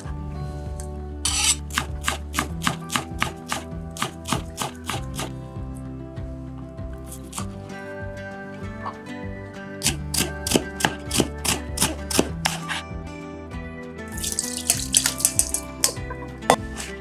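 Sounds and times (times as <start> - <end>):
soft background music: 0.0 - 17.0
water pouring and splashing: 14.1 - 17.0.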